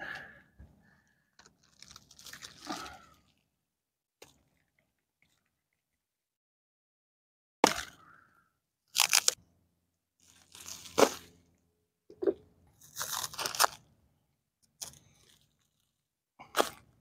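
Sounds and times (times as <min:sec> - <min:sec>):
plastic wrapping crinkling: 0:01.4 - 0:02.9, 0:10.2 - 0:11.2, 0:12.8 - 0:13.8.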